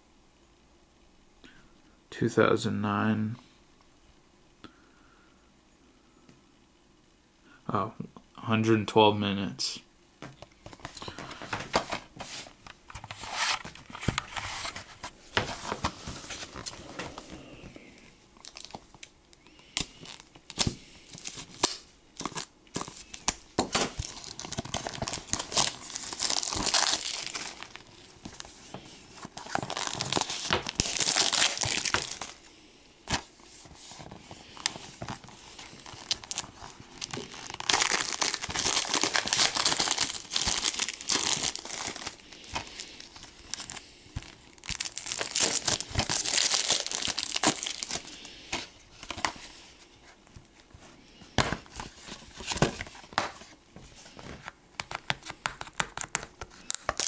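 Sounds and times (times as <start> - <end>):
plastic wrap tearing and crinkling: 18.4 - 19.1, 19.7 - 32.4, 33.1 - 48.3, 54.9 - 57.0.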